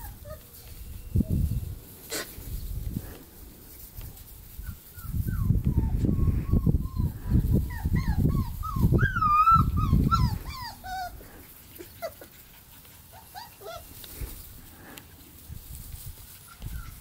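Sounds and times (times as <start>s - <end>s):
puppies whimpering and yipping: 0.0s - 2.5s, 4.5s - 14.4s, 16.3s - 17.0s.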